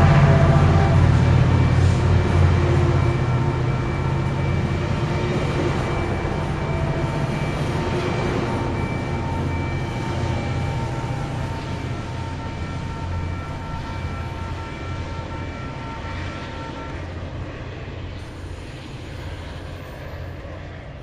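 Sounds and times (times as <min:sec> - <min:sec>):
high whining tones: 0:00.0 - 0:17.2
diesel train rumble: 0:00.0 - 0:21.0.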